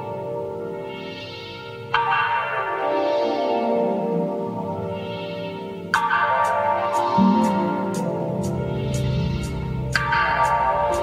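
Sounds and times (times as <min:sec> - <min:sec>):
soft background music: 0:00.0 - 0:11.0.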